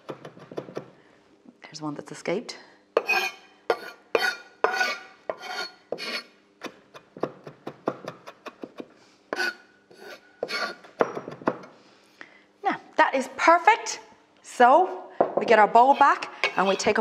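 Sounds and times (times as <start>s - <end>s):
knife scraping across board: 3.0s - 6.3s, 9.3s - 10.8s, 15.8s - 17.0s.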